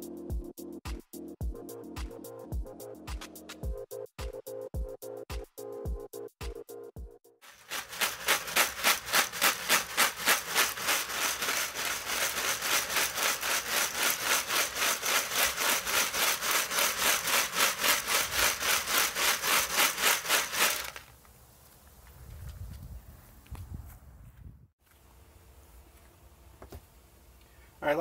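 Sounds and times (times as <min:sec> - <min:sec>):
plastic rings rattling in wire basket: 0:07.5 - 0:21.1.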